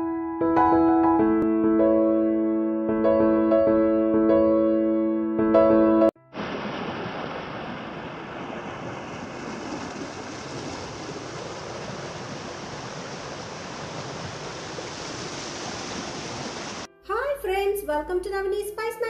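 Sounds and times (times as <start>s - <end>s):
stream flowing over stones: 6.4s - 16.9s.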